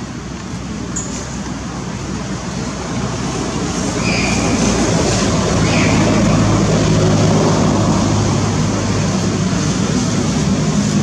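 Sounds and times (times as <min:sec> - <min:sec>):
loud rushing noise: 0:02.3 - 0:11.0.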